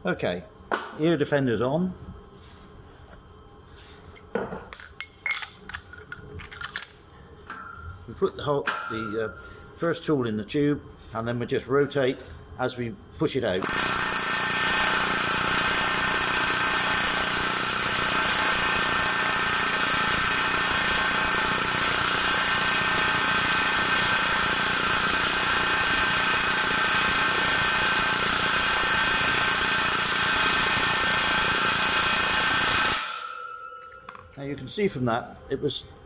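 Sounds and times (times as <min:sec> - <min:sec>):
pneumatic hammer rapid hammering: 0:13.5 - 0:34.2.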